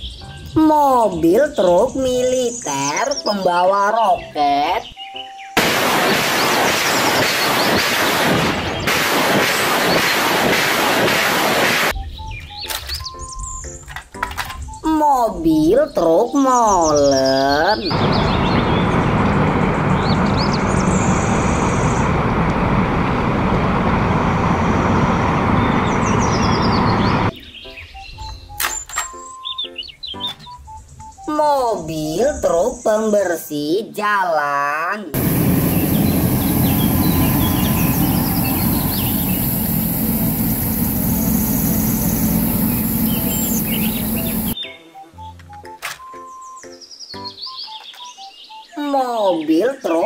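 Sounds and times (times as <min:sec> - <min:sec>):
birds chirping faintly: 0:00.0 - 0:05.6, 0:14.6 - 0:22.1, 0:25.4 - 0:33.3, 0:35.2 - 0:50.0
diesel engine rumbling: 0:17.9 - 0:27.3, 0:35.2 - 0:44.6.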